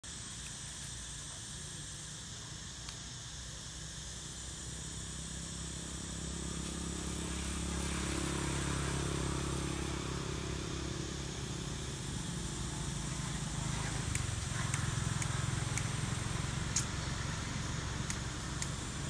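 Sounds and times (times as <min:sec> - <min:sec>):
high insect hiss: 0:00.0 - 0:19.0
low engine hum: 0:04.7 - 0:19.0.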